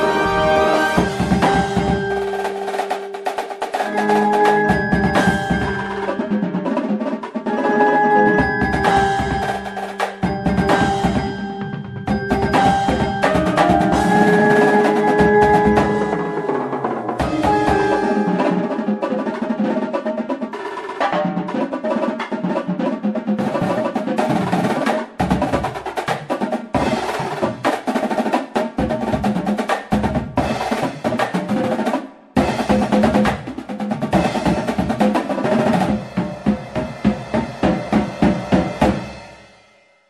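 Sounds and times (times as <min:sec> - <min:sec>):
sustained melodic notes: 0:00.0 - 0:06.8, 0:07.5 - 0:20.0
music with drums: 0:00.0 - 0:40.0.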